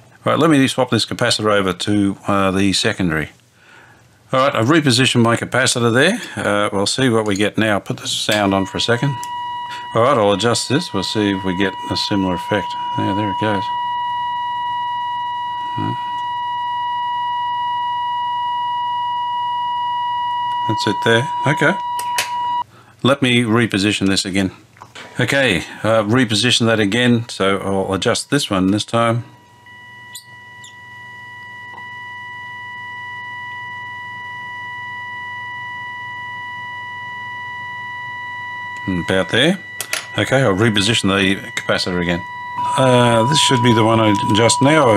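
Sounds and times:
radio test tone whistle: 8.3 - 22.7, 29.3 - 44.9.

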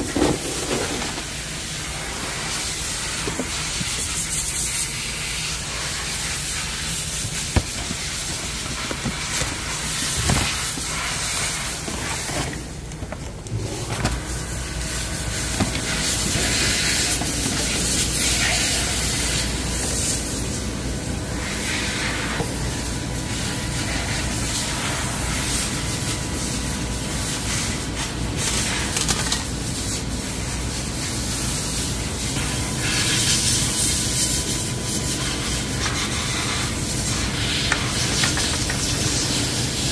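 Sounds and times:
steady hissing: 1.2 - 12.3.

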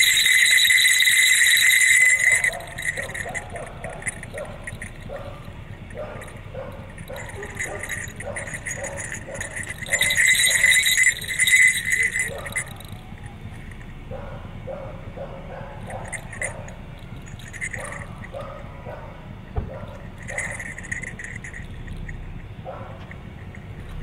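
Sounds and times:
small metal bells shaking: 0.0 - 14.2, 15.8 - 18.9, 19.9 - 22.4, 23.0 - 24.0.

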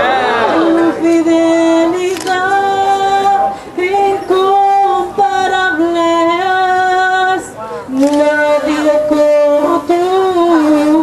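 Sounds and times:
woman singing slow melody: 0.7 - 11.0.

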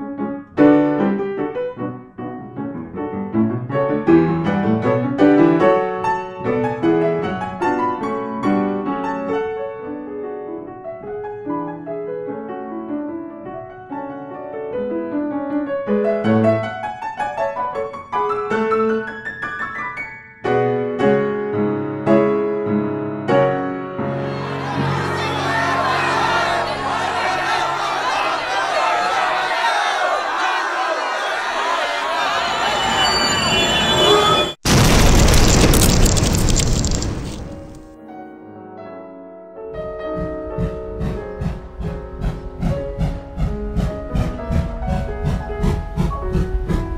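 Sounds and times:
solo piano music: 0.0 - 28.0.

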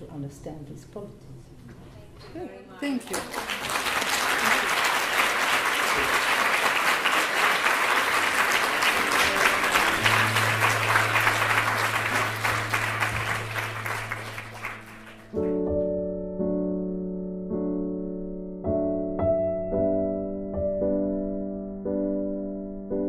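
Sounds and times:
audience applauding: 2.9 - 15.6
gentle piano chords: 8.0 - 23.0.

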